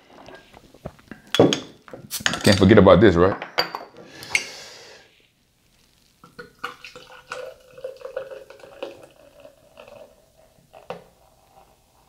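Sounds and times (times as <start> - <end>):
beer glugging into glass: 6.2 - 11.1.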